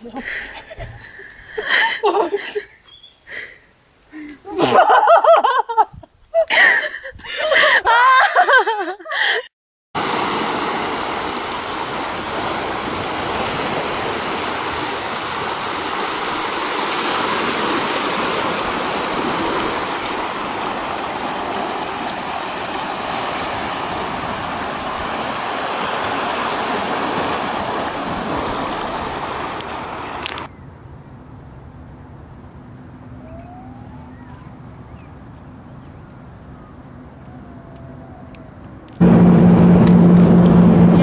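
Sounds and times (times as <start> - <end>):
waves lapping against rocks: 10.0 - 30.5.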